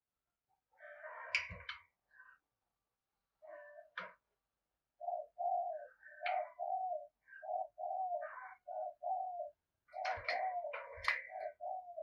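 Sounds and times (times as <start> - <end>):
dove cooing: 5.0 - 12.0.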